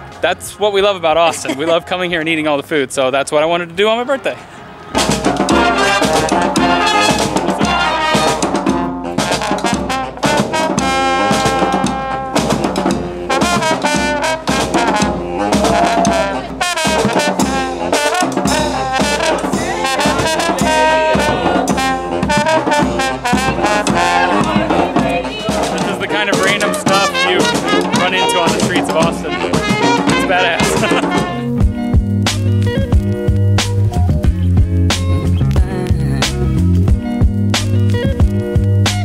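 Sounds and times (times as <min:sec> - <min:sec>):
brass band playing: 0:01.2 - 0:02.3, 0:04.8 - 0:32.5
bass drum: 0:05.0 - 0:39.0.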